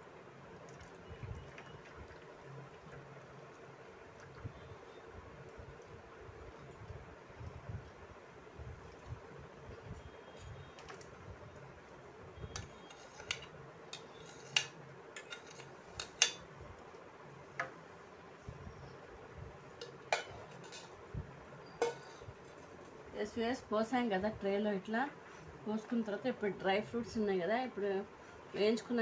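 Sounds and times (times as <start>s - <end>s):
faint hum and hiss: 0.0s - 29.0s
kitchen utensils clinking: 12.6s - 16.4s, 19.8s - 21.0s, 21.7s - 22.4s.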